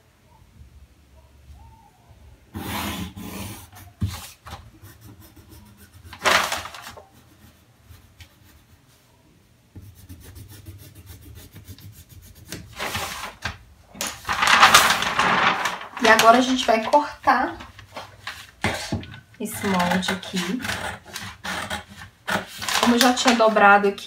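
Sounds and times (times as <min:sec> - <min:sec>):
pencil scratching on paper: 0:02.6 - 0:09.0, 0:09.8 - 0:13.4, 0:18.4 - 0:23.8
paper rustling: 0:06.1 - 0:07.2, 0:12.5 - 0:24.0.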